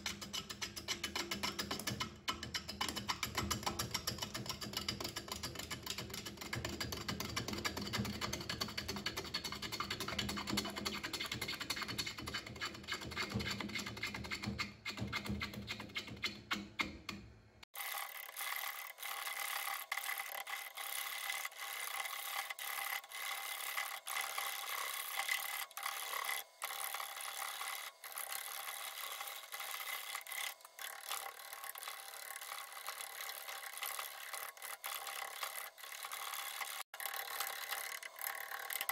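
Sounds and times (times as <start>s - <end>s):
gouge scraping wood on lathe: 18.4s - 37.6s.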